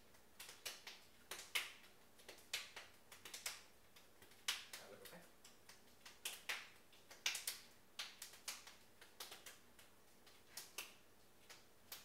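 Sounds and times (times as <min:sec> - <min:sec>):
hands clapping: 0:00.4 - 0:12.0.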